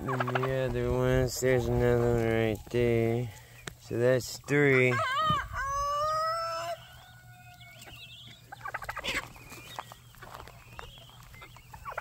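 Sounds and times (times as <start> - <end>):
chickens clucking and chirping: 0.0 - 12.0
rooster crowing: 4.7 - 7.8.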